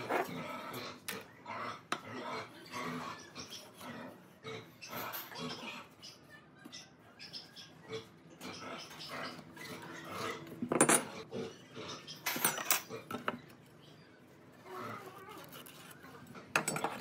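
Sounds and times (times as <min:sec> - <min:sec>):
soft handling and scraping: 0:13.2 - 0:17.0.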